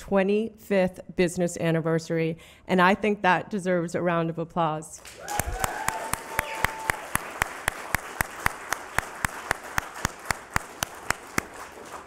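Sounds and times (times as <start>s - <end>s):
close sharp claps: 5.0s - 12.0s
crowd applauding: 5.0s - 12.0s.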